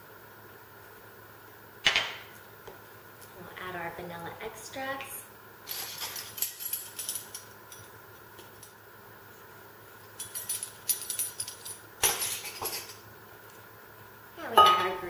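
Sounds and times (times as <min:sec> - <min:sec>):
kitchenware clinking: 0:05.7 - 0:07.5, 0:10.2 - 0:13.0, 0:14.5 - 0:15.0.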